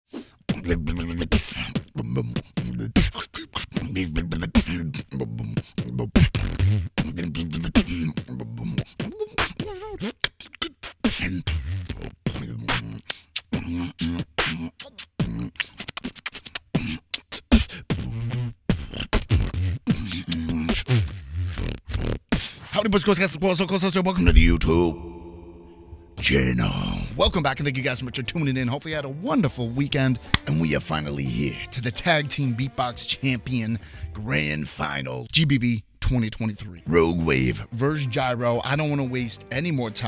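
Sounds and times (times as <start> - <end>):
vocal beatboxing: 0.2 - 23.2, 24.1 - 27.0
hummed bass notes: 24.2 - 27.2.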